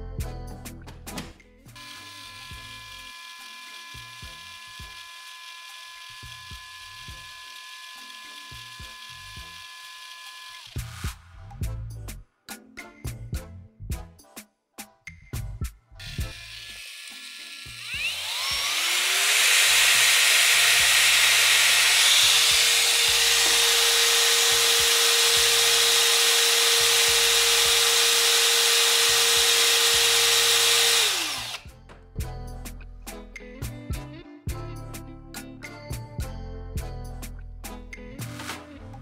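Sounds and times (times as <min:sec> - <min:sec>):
paddle mixer whining: 0:01.8 - 0:11.1, 0:16.0 - 0:31.7.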